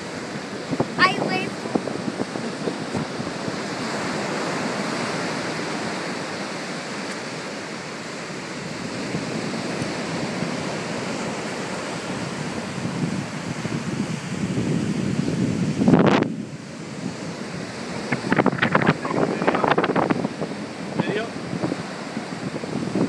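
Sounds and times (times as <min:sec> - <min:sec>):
ocean surf breaking: 0:00.0 - 0:23.0.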